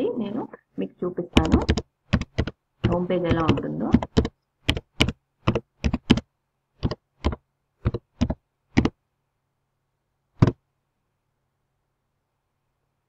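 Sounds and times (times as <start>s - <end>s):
keyboard key clicks: 6.8s - 8.9s.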